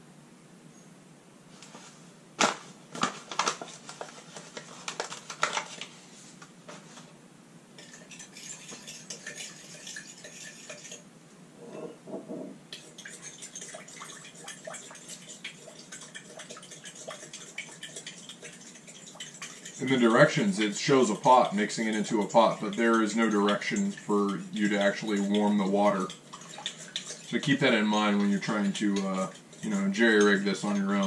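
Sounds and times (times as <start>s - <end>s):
spoon clinking and scraping glass: 7.8s - 11.0s, 12.8s - 31.0s.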